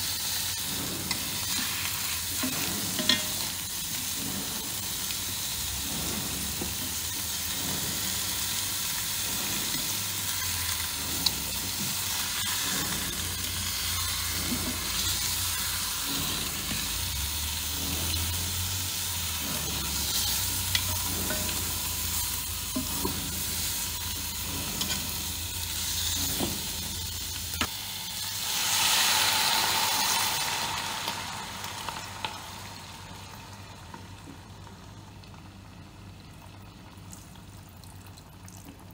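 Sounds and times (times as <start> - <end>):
meat sizzling in a pot: 0.0 - 36.2.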